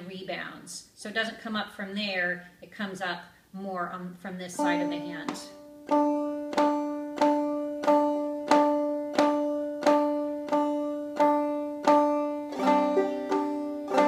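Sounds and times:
banjo strums: 4.5 - 14.0.

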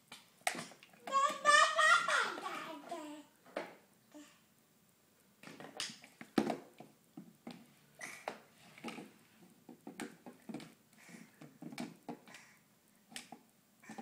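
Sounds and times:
plastic toy bumping floor: 5.4 - 7.6.

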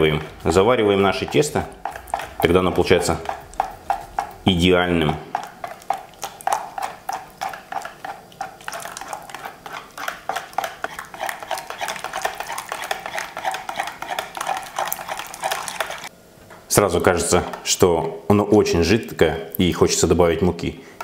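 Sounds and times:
whisk clicking against bowl: 0.0 - 16.1.

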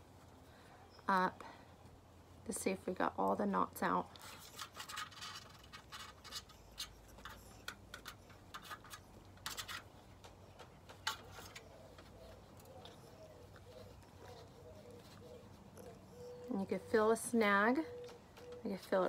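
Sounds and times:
metal comb scratching through fur: 4.0 - 19.0.

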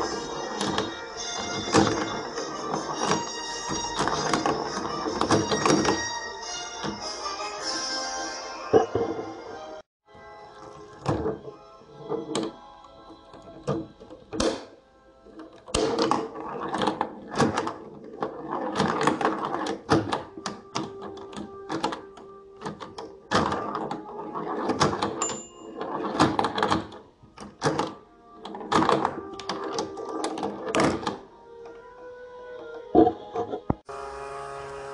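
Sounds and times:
ball knocking and rattling: 0.0 - 6.1, 15.3 - 31.2.

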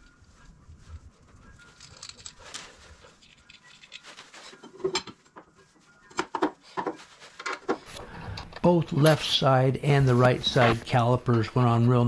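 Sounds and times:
metal clicks and rubbing: 1.7 - 9.2.

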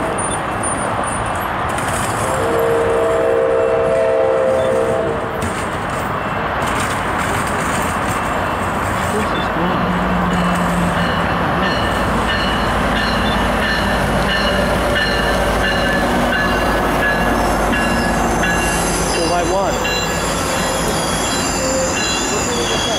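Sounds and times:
train rumbling past: 0.0 - 22.9
train wheels squealing: 10.5 - 22.9.

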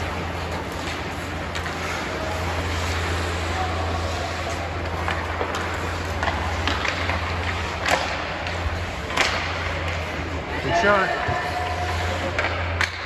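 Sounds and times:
hockey sticks and puck knocking: 0.0 - 13.0.

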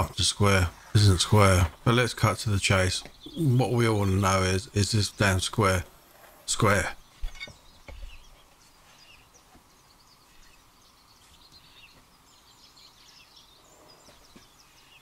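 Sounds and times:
faint birdsong chirps: 0.0 - 15.0.

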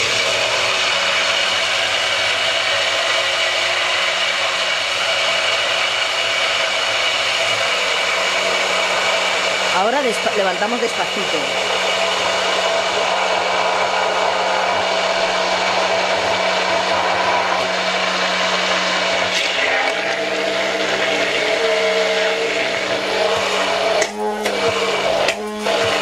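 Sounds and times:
stick blender whirring: 0.0 - 26.0.

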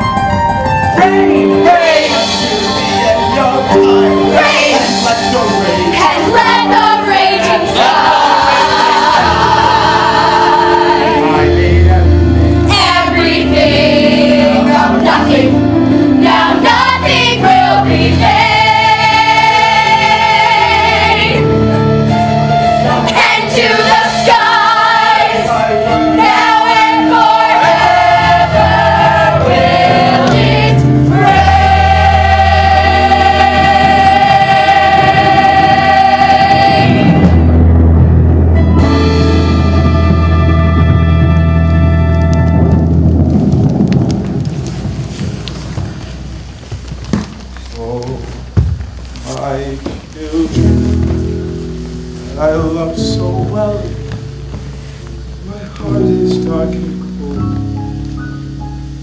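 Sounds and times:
instrumental accompaniment with bass: 0.0 - 59.0
young choir singing: 1.2 - 2.5, 3.8 - 5.1, 5.8 - 11.6, 12.6 - 21.5, 22.8 - 37.6.

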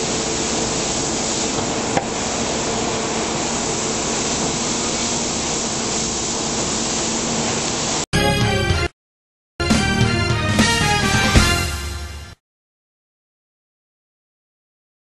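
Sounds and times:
injection molding machine hissing: 0.0 - 8.0
music: 8.1 - 8.9, 9.6 - 12.4.

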